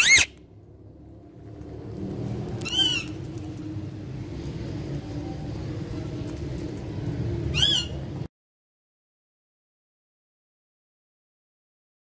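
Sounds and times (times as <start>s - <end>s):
parrot screeching: 0.0s - 0.4s, 2.6s - 3.2s, 7.5s - 8.0s.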